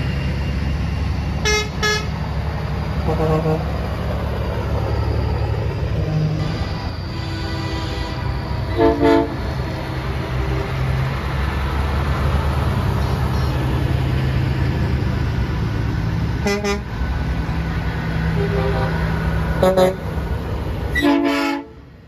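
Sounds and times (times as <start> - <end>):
truck engines rumbling: 0.0 - 22.0
truck air horn blasts: 1.4 - 2.2, 3.0 - 3.8, 6.0 - 9.4, 16.4 - 16.9, 18.4 - 19.0, 19.6 - 20.0, 20.9 - 21.8.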